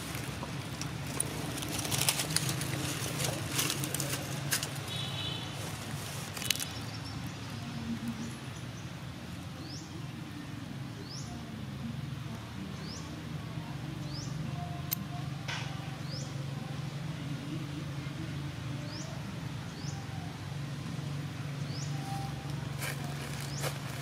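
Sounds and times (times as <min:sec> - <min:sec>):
rustling and crackling: 0:00.0 - 0:06.8, 0:22.8 - 0:24.0.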